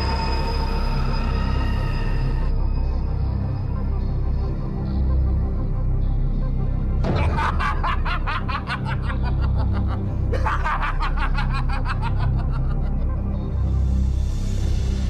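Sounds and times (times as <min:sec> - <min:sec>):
low background music drone: 0:00.0 - 0:15.0
villain laughing: 0:07.1 - 0:13.3.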